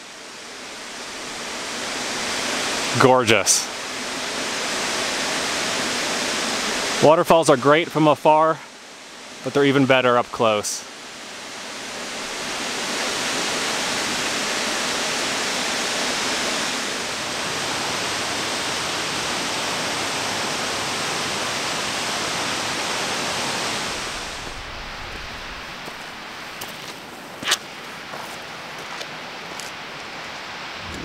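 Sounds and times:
waterfall rushing: 0.0 - 31.0.

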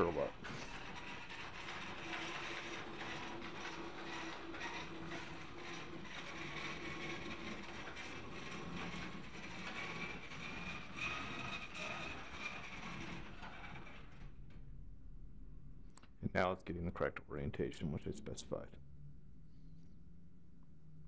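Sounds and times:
faint clicks and rattles: 0.0 - 14.8.

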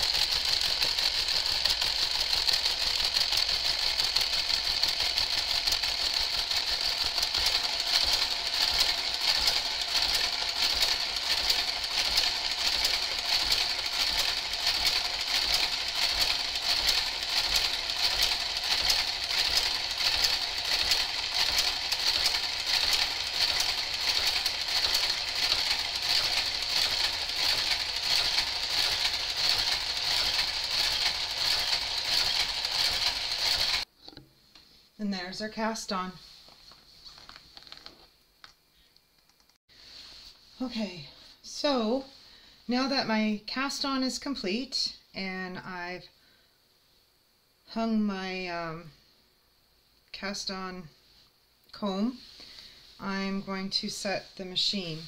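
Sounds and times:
knitting machine carriage clicking: 0.0 - 33.9.

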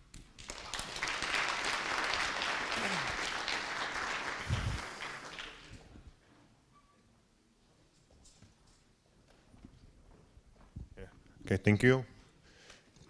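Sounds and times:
audience applauding: 0.4 - 6.0.

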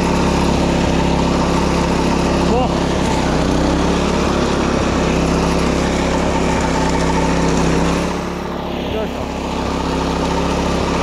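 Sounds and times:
mower engine running: 0.0 - 11.0.

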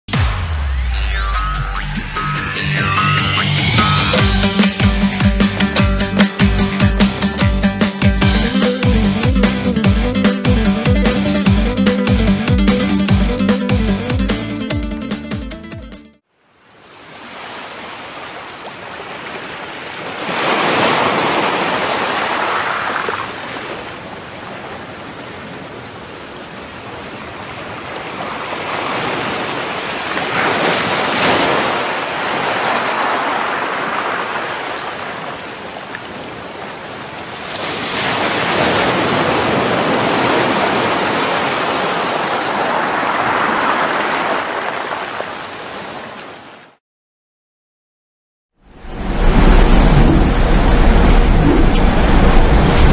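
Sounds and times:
wind: 16.2 - 46.8, 48.6 - 52.9
waves on choppy sea: 16.3 - 46.8, 48.7 - 52.9.

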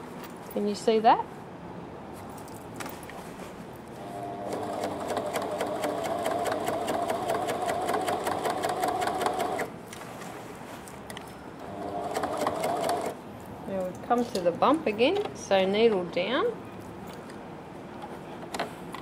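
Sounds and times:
sewing machine stitching: 4.0 - 9.7, 11.7 - 13.2.

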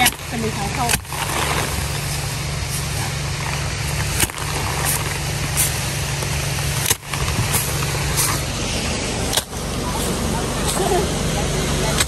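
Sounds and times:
thresher engine droning: 0.0 - 12.0.

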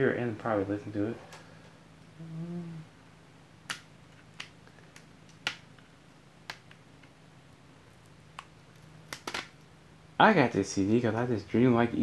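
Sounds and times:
low voice hum: 2.1 - 3.0.

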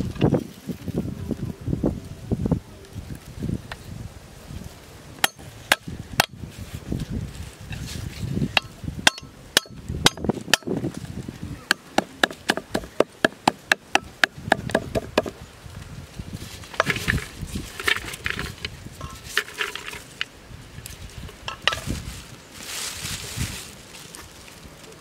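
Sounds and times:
cleaver chopping on wooden board: 11.7 - 15.3.

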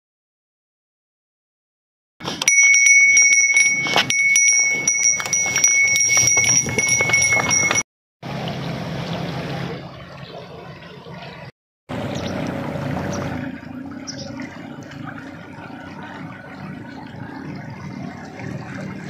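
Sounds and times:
neck bell ringing: 2.4 - 7.8.

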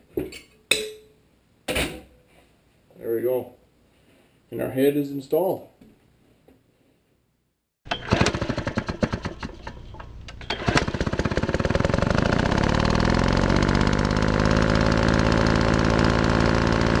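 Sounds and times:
engine cranking and starting: 7.8 - 17.0.

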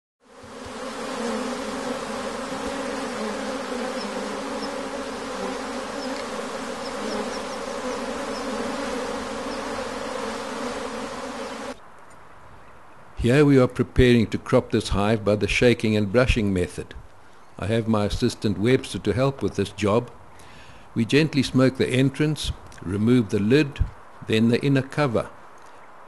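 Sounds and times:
honeybees buzzing: 0.2 - 11.8.

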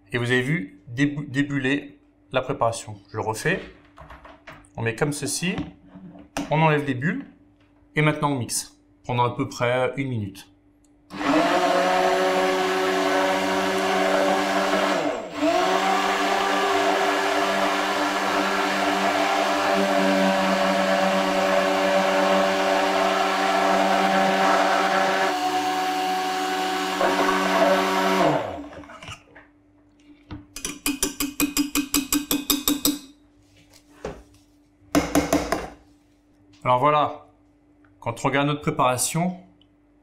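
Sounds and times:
motor spinning down: 11.1 - 28.8
immersion blender running: 11.1 - 29.0.

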